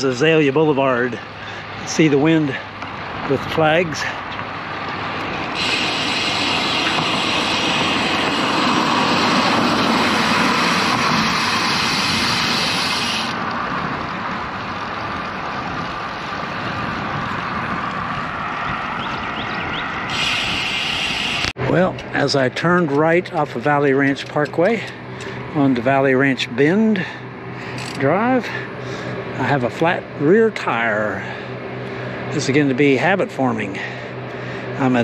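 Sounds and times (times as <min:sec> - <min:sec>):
road noise: 0:00.0 - 0:35.0
wind on microphone: 0:05.5 - 0:21.5.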